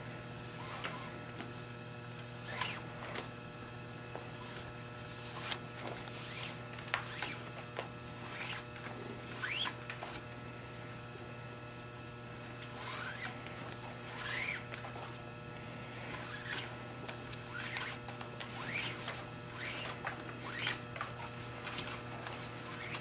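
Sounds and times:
steady low hum: 0:00.0 - 0:23.0
cord zipping through loops: 0:00.5 - 0:01.3, 0:02.4 - 0:03.2, 0:04.3 - 0:07.6, 0:08.2 - 0:10.2, 0:12.6 - 0:15.2, 0:16.0 - 0:23.0.

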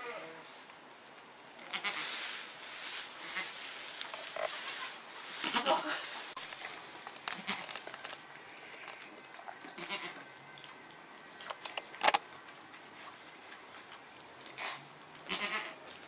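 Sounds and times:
straw rustling: 0:00.0 - 0:16.0
small clicks: 0:11.4 - 0:12.2.

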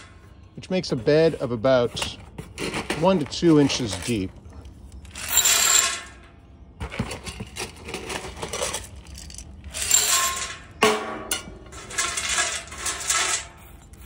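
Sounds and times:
wood pellets rattling into metal pit: 0:05.1 - 0:06.2, 0:07.0 - 0:13.6.

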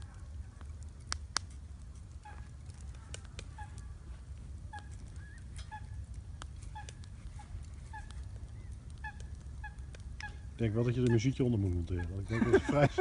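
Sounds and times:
oysters crackling on grill: 0:00.0 - 0:13.0.

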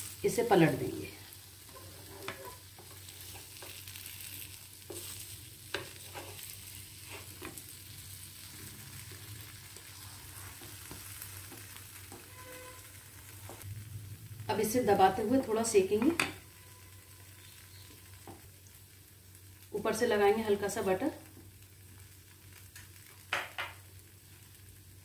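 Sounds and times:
butter sizzling in a pan: 0:00.0 - 0:25.0
wooden spatula scraping a pan: 0:01.6 - 0:07.6, 0:09.7 - 0:13.6.

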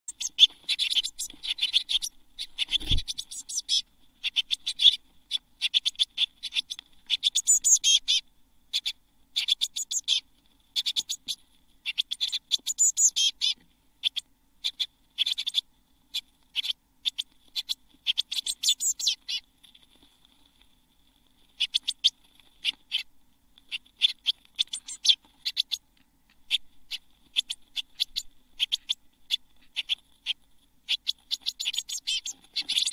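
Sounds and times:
nestlings chirping: 0:00.1 - 0:20.1, 0:21.5 - 0:32.9.

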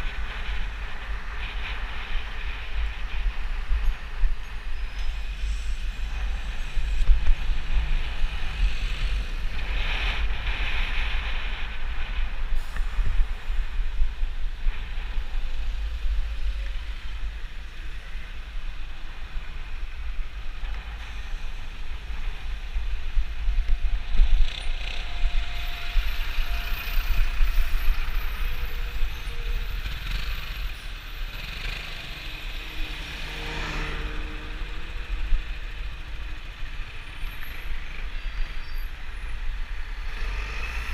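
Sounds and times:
city traffic noise: 0:00.0 - 0:40.9
wind rumble on microphone: 0:00.0 - 0:40.9.

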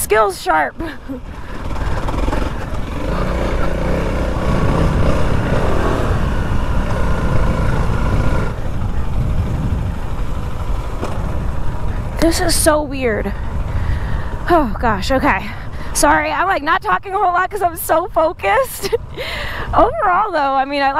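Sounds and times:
motorcycle engine revving: 0:00.0 - 0:13.7.

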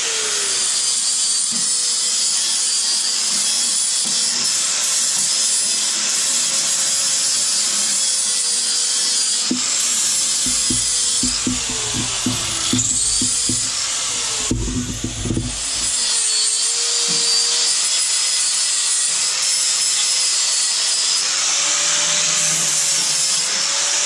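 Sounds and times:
angle grinder grinding steel: 0:08.4 - 0:17.4.

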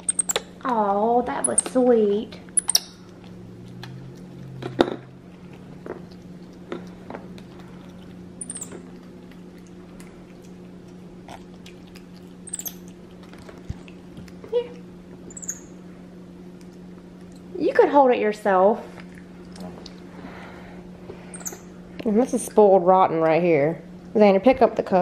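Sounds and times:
monkey high-pitched chirps: 0:00.0 - 0:00.5, 0:01.4 - 0:01.8, 0:02.5 - 0:03.0, 0:08.4 - 0:08.9, 0:12.4 - 0:12.9, 0:15.2 - 0:15.8, 0:21.3 - 0:21.7
steady low hum: 0:00.0 - 0:25.0
monkey chewing food: 0:02.4 - 0:15.7.

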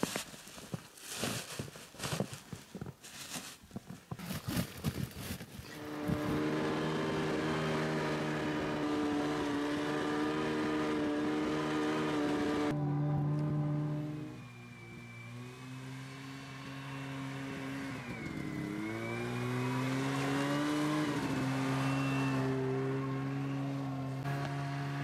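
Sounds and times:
footsteps in snow: 0:00.0 - 0:06.5
snowmobile engine running: 0:04.3 - 0:25.0.

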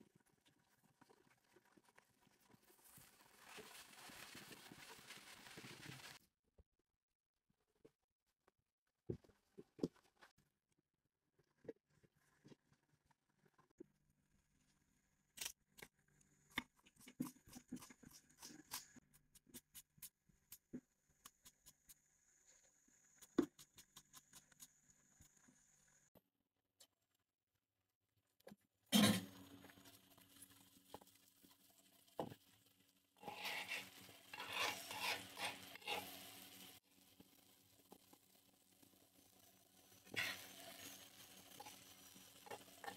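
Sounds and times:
faint frying sizzle: 0:01.0 - 0:06.2, 0:29.3 - 0:42.9
metal spatula scraping iron pan: 0:33.2 - 0:36.6.

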